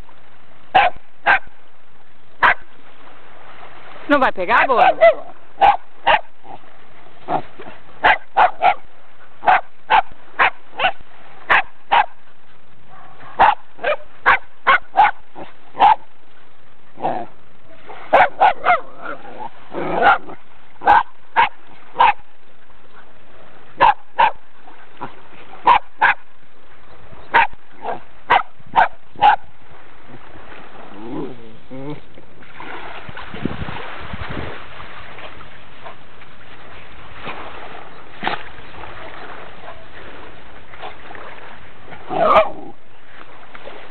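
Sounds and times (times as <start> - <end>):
dog barking sharply: 0.8 - 1.4, 4.8 - 6.3, 8.0 - 8.8, 9.4 - 12.1, 13.0 - 15.2, 18.1 - 18.8, 20.8 - 22.2, 23.8 - 24.4, 28.3 - 29.4.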